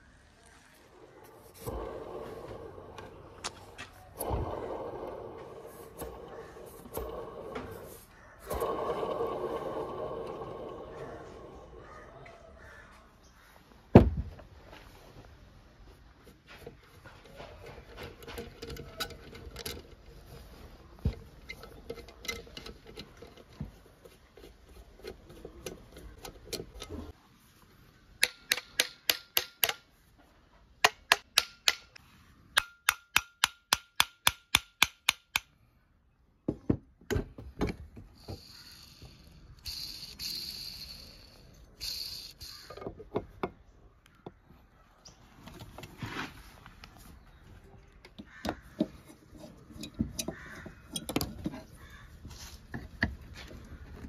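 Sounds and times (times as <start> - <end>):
hand tools scraping metal: 48.6 - 52.7.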